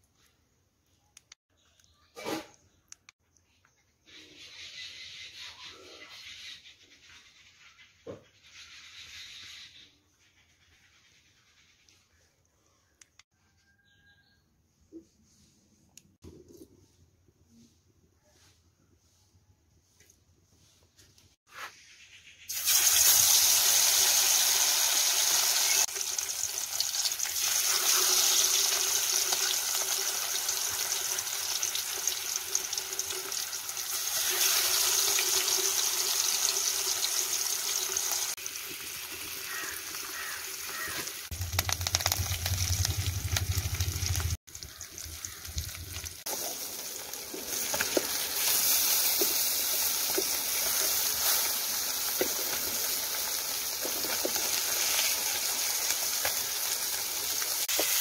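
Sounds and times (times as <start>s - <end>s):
fish sizzling in hot oil: 22.5s - 58.0s.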